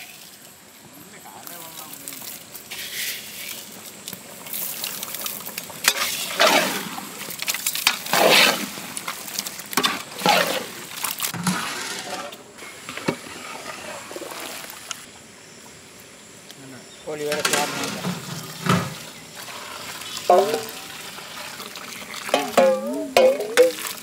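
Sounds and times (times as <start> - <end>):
water pouring into pot: 17.5 - 24.0.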